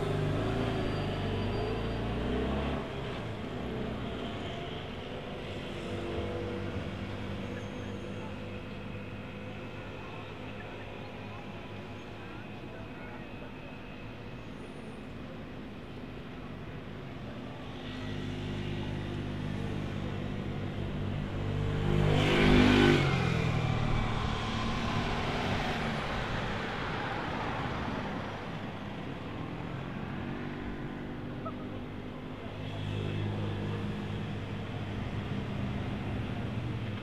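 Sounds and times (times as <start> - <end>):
engine hum: 19.0 - 37.0
vehicle passing by: 21.2 - 28.5.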